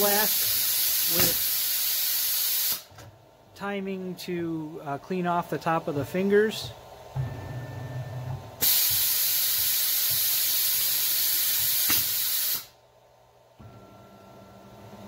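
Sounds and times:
compressed air blast hissing: 0.0s - 2.9s, 8.6s - 12.8s
low machine hum: 3.1s - 8.6s, 12.8s - 15.0s.

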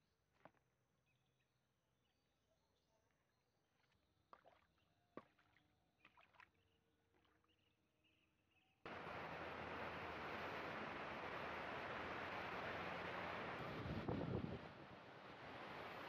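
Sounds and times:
breaking surf: 8.9s - 16.0s.

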